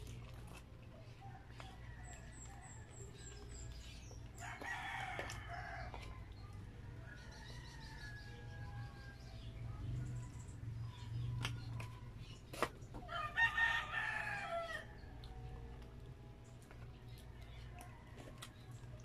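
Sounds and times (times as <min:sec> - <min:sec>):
rooster crowing: 0:13.1 - 0:15.0.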